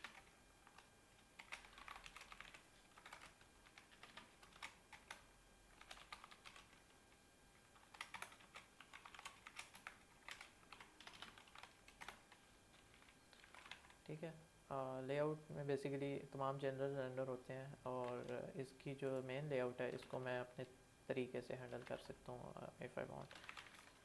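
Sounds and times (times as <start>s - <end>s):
faint keyboard typing: 0.0s - 14.1s, 17.9s - 19.3s, 23.0s - 24.0s.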